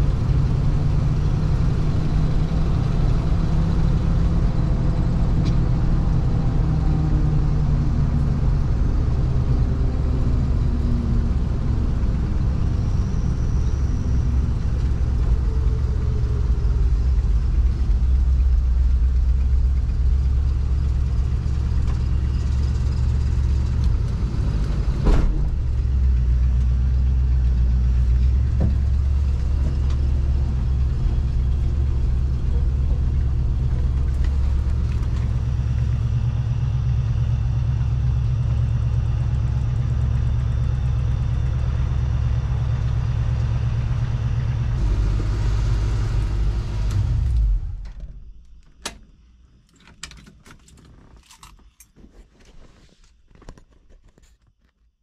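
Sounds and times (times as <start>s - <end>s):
engine knock: 0.0s - 44.9s
engine low rumble: 0.0s - 53.7s
light clicks and rattles: 47.8s - 54.9s.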